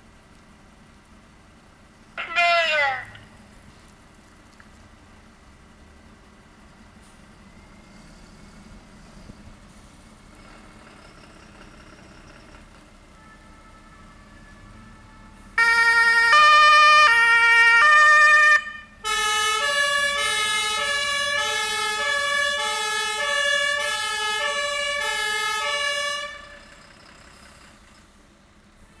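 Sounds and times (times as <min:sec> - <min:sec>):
fire engine two-tone siren: 0:02.2 - 0:03.2, 0:12.9 - 0:28.2.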